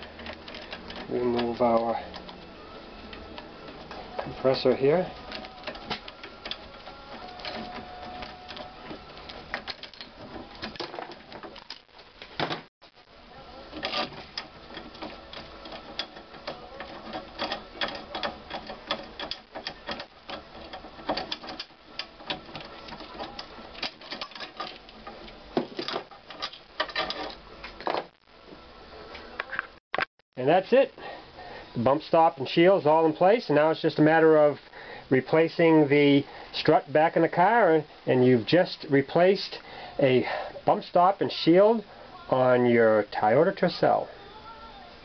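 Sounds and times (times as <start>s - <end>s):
metal clicking and rattling: 0.0s - 2.5s, 3.1s - 12.7s, 13.7s - 28.1s.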